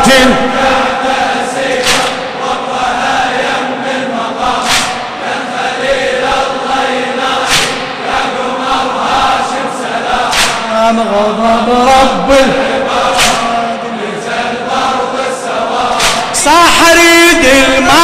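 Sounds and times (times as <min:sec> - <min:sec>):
crowd chanting in unison: 0:00.0 - 0:18.0
collective chest slaps: 0:01.8 - 0:02.4, 0:04.6 - 0:05.2, 0:07.4 - 0:08.2, 0:10.2 - 0:10.7, 0:13.0 - 0:13.6, 0:15.9 - 0:16.4.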